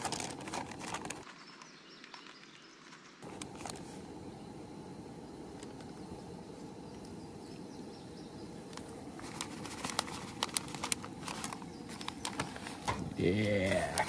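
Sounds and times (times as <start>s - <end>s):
gas stove burner hissing: 3.2s - 9.2s.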